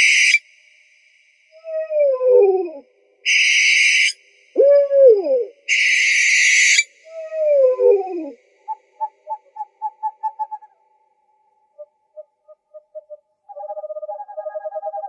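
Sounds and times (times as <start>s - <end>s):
owl hooting: 1.6s - 10.8s, 11.7s - 15.0s
owl harsh hissing screech: 3.3s - 4.2s, 5.7s - 6.9s.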